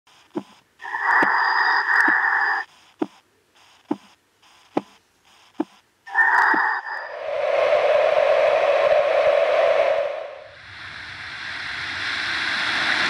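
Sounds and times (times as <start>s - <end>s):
recorded heartbeat thumps: 0.1s - 0.6s, 2.8s - 5.8s
recorded long breath: 0.8s - 2.7s, 6.1s - 13.0s.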